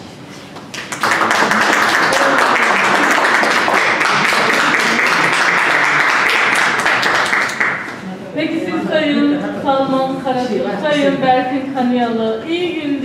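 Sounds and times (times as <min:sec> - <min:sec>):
crowd applauding: 0:00.7 - 0:08.0.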